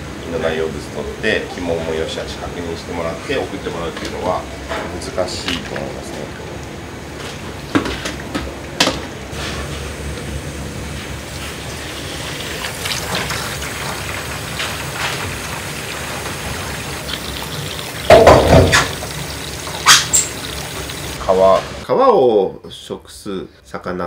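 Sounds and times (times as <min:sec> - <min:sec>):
tap water running into sink: 0:11.2 - 0:21.2
loud clunk: 0:18.1 - 0:19.0.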